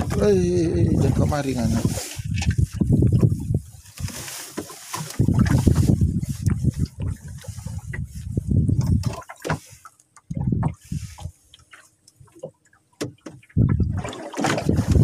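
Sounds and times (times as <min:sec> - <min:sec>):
rough rumbling wind noise: 0:00.0 - 0:11.5, 0:13.4 - 0:15.0
water sloshing: 0:00.0 - 0:15.0.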